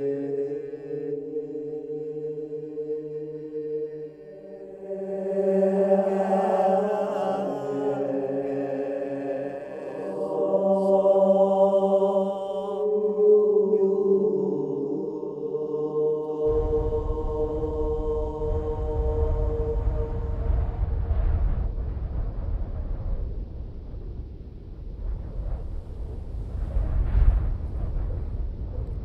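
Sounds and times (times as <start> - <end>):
droning soundtrack music: 0.0 - 23.4
deep low rumble: 16.5 - 29.0.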